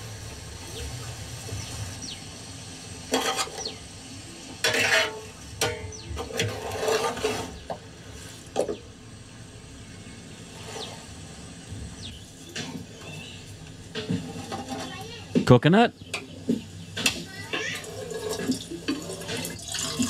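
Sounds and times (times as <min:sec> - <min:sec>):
spoon scraping steel bowl: 0:04.6 - 0:07.6.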